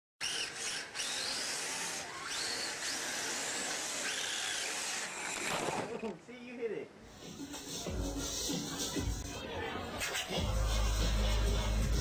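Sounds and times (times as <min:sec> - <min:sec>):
electric motor whining: 0:00.2 - 0:06.2.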